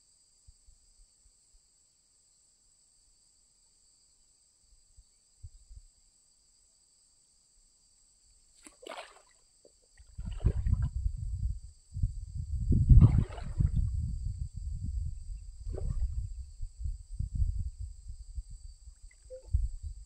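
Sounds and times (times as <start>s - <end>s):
net splashing into water: 8.6s - 9.4s, 10.0s - 10.9s, 12.9s - 13.9s, 15.6s - 16.3s
wind buffeting microphone: 10.0s - 20.0s.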